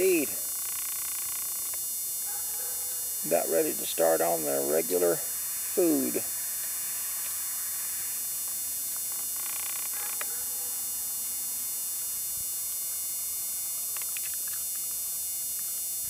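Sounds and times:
electrical hum and hiss: 0.0 - 16.0
faint clicks: 13.9 - 14.9.

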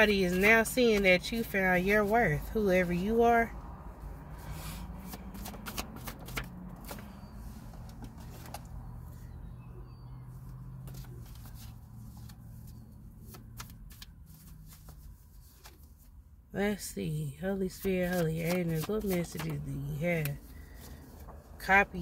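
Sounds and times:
cards being shuffled by hand: 4.6 - 8.8, 10.4 - 16.1, 17.7 - 21.5.

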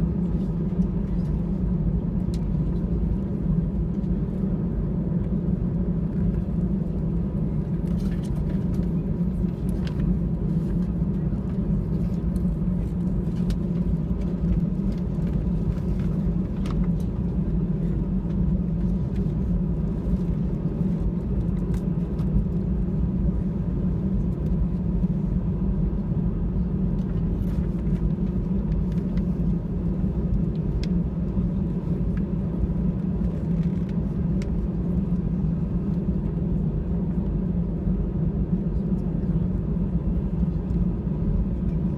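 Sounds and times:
aircraft engine hum and rumble: 0.0 - 41.9.

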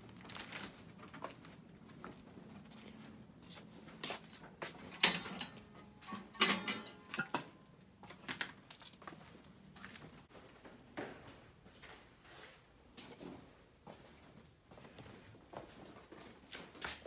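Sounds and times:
footsteps with knocks and clatter: 0.0 - 5.4, 6.0 - 17.0
brief high squeak: 5.4 - 5.9.

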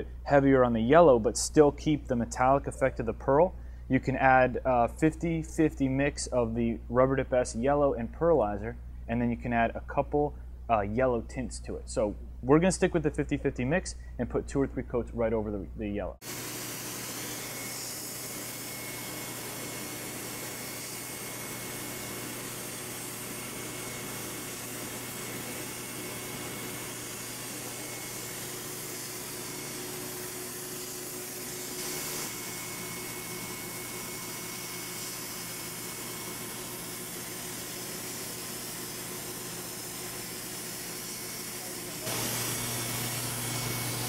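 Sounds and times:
spray gun motor hum: 16.2 - 44.0.

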